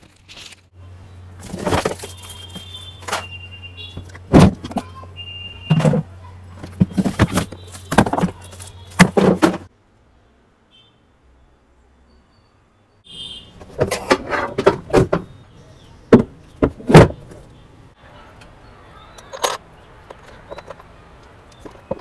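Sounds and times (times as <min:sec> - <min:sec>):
plastic parts knocking and scraping: 0:01.4 - 0:04.9, 0:05.7 - 0:09.7, 0:13.6 - 0:15.4, 0:16.1 - 0:17.5, 0:19.2 - 0:22.0
loud thumps: 0:16.1 - 0:17.4.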